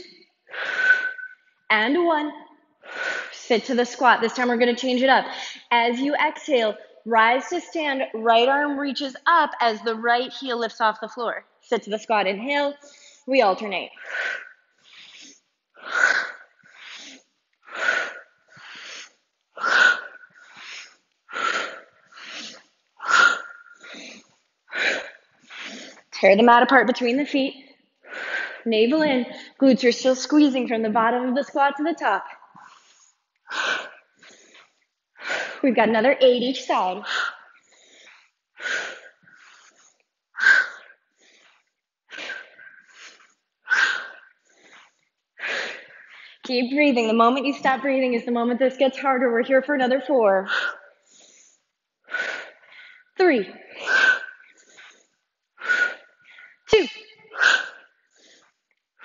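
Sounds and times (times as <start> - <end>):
woman breathing heavily: 0.0 - 1.3, 2.8 - 3.4, 5.2 - 5.7, 12.8 - 13.3, 13.9 - 26.2, 28.0 - 29.6, 32.3 - 35.6, 36.4 - 46.5, 50.5 - 58.8.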